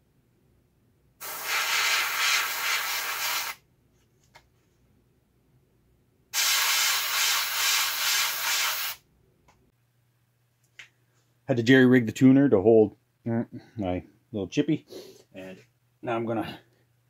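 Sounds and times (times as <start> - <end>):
airbrush spraying hiss: 1.2 - 3.6, 6.4 - 9.0.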